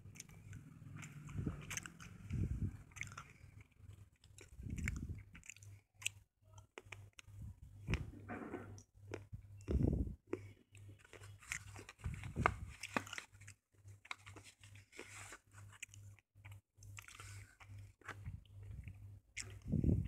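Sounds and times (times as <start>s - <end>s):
pencil crunching between teeth: 0.0s - 6.2s, 10.3s - 19.7s.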